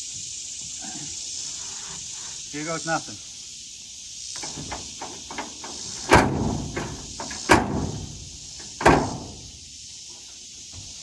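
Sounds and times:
metal tailgate slamming: 4.4 - 9.6.

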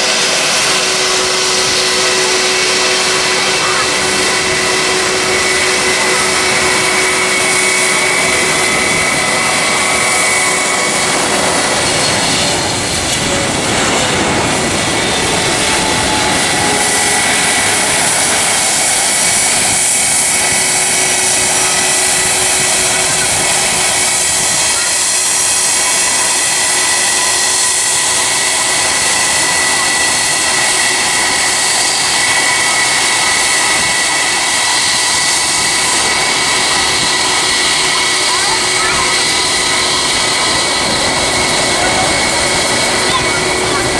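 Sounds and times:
jet engines landing overhead: 0.0 - 43.9.

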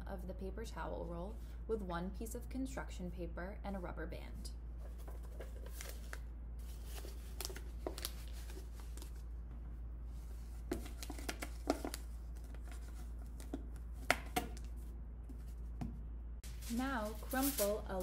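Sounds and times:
steady low hum: 0.0 - 18.0
paper rustling and crinkling: 4.8 - 9.2, 16.4 - 18.0.

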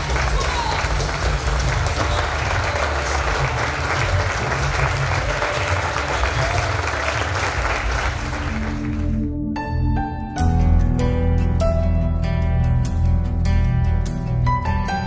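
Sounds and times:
congregation applauding: 0.0 - 9.2
soft instrumental music: 0.6 - 15.0.

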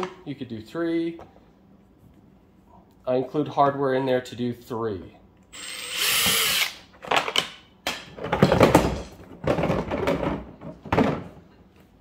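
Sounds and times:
cordless drill whine: 5.5 - 6.8.

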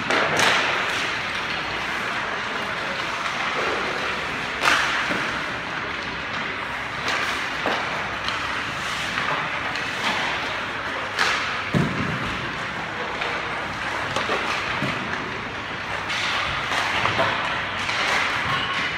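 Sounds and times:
hockey pucks hitting pads and boards: 0.0 - 18.9
ice rink hum: 0.0 - 18.9.

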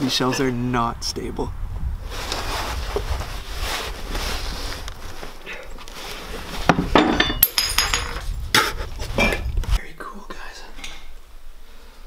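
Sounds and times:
wind rumble on microphone: 0.1 - 5.4, 7.8 - 9.8.

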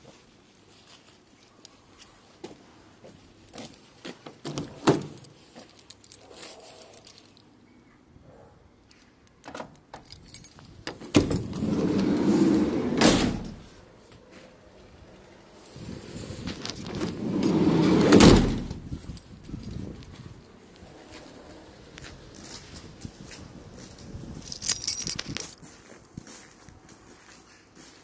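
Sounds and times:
keys jangling in a lock: 4.5 - 7.6, 9.4 - 13.6, 16.5 - 20.5, 24.4 - 25.6
door heavy clunk: 10.9 - 13.6, 17.0 - 18.8
sliding door rolling open: 11.0 - 13.7, 15.8 - 18.8.

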